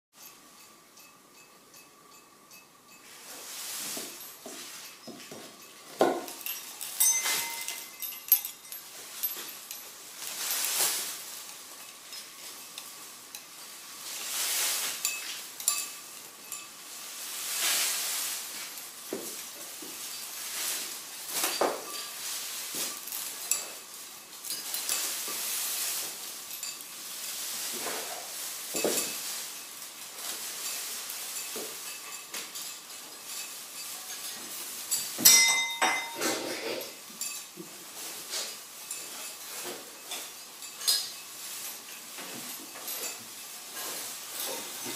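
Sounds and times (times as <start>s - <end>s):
clinks and knocks: 0.2s - 14.2s, 14.8s - 16.9s, 27.8s - 37.7s, 38.3s - 44.9s
plastic strips rustling: 5.9s - 35.3s, 36.3s - 44.9s.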